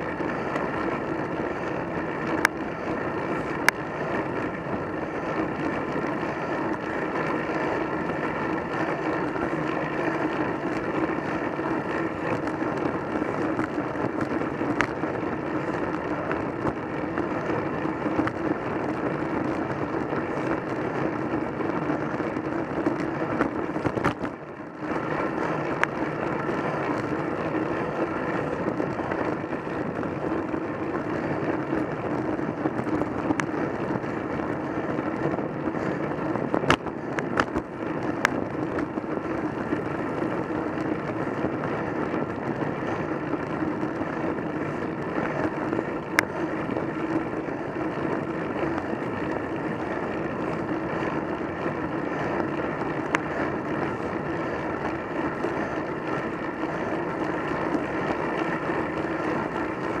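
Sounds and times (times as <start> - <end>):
tyre rumble on tarmac: 0.0 - 60.0
wind rush: 0.0 - 60.0.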